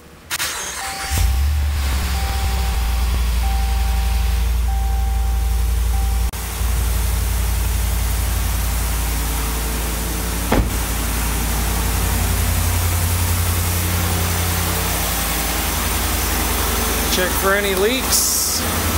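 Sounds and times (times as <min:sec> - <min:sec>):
truck engine idling: 0:01.0 - 0:18.9
sharp knock: 0:10.5 - 0:10.9.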